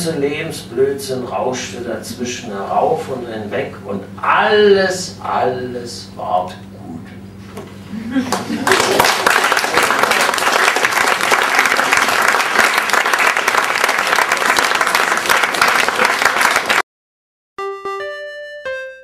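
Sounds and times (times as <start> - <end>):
audience applauding: 8.3 - 16.8.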